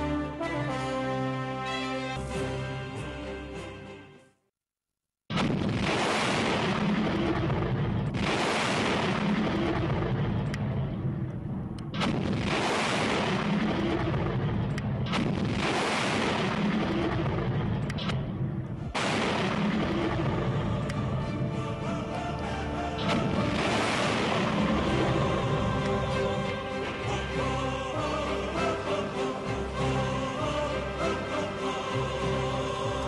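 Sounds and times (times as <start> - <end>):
rocket launch roar: 5.4 - 10.4, 12.0 - 17.7, 19.0 - 20.6, 23.1 - 25.9.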